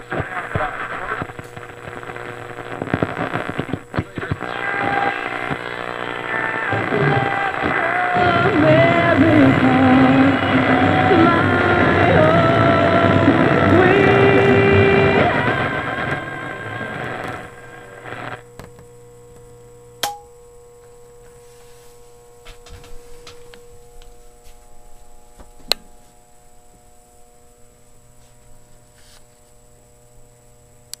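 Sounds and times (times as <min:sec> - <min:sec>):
radio station audio: 0:00.0 - 0:18.4
radio low hum: 0:00.0 - 0:31.0.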